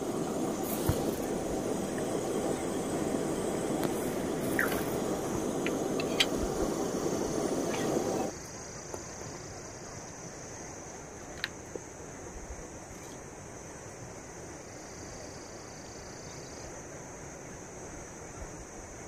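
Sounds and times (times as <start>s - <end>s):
gas burner roaring: 0.0s - 8.3s.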